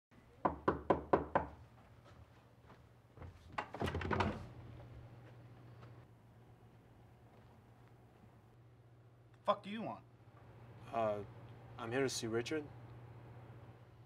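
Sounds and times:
knuckles knocking on a door: 0:00.5 - 0:01.6
door opening with rattles and thuds: 0:03.5 - 0:04.6.

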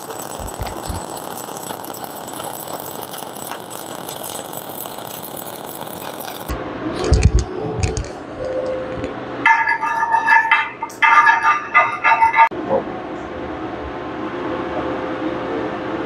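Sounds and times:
welding arc crackling: 0:00.0 - 0:08.2.

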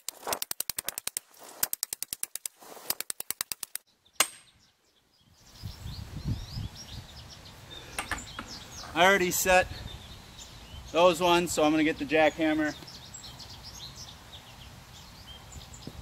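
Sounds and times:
birds chirping faintly: 0:03.7 - 0:16.0
sledgehammer striking steel pipes: 0:04.2 - 0:04.5.

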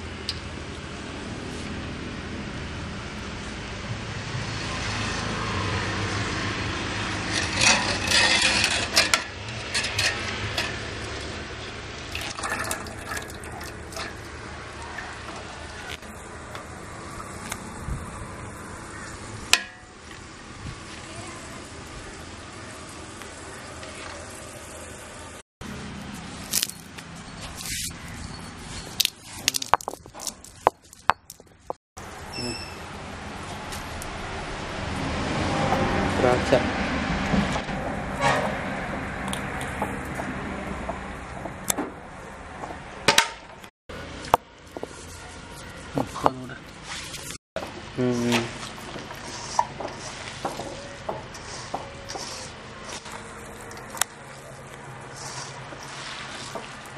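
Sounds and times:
stone roller scraping: 0:06.9 - 0:11.4, 0:26.6 - 0:31.8, 0:48.4 - 0:56.9
metal ladle scraping steel pot: 0:07.0 - 0:11.2, 0:12.1 - 0:14.4
liquid splashing: 0:12.0 - 0:15.8, 0:51.4 - 0:56.9
oil frying hiss: 0:13.0 - 0:25.4, 0:48.5 - 0:53.6.

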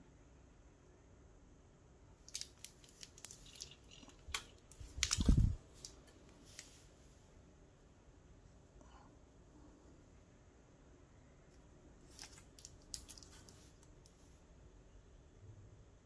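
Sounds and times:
packaging clicks and crinkles: 0:02.2 - 0:06.7, 0:12.1 - 0:13.8.

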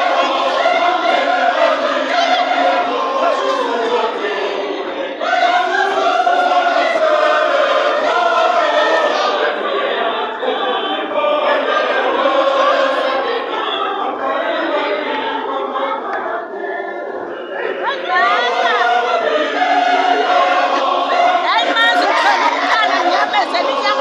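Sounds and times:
choir singing: 0:00.0 - 0:24.0.

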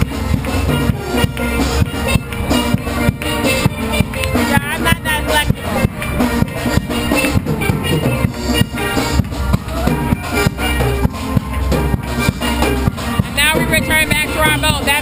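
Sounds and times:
steady drum beat: 0:00.0 - 0:15.0
steel pan music: 0:00.0 - 0:15.0.

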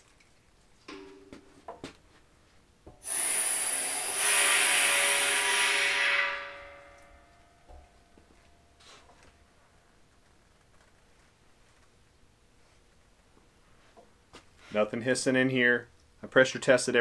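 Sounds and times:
compressed air hissing: 0:03.0 - 0:04.7.

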